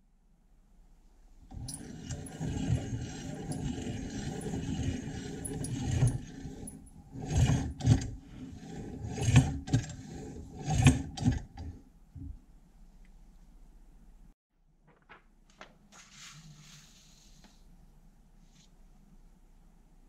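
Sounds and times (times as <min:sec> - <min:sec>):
hand-cranked meat grinder scraping: 0:01.6 - 0:11.7.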